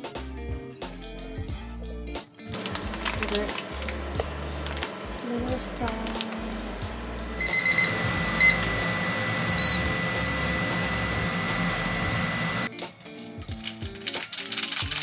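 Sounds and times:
cooktop steady hum: 2.6s - 12.7s
thin high tone: 7.2s - 12.7s
cooktop short beeps: 7.4s - 8.9s, 9.6s - 10.1s.

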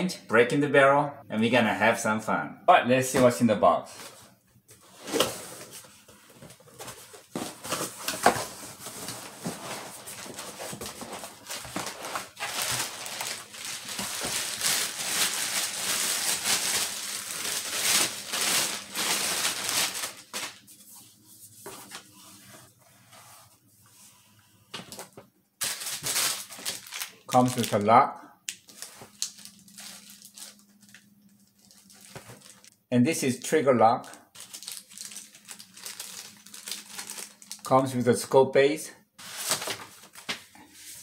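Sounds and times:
plastic bag crinkling: 6.3s - 20.7s, 25.6s - 27.9s, 28.5s - 32.8s, 34.0s - 37.7s.

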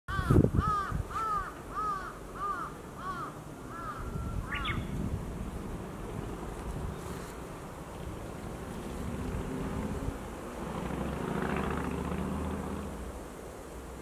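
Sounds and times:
bird giving harsh calls: 0.1s - 5.0s.

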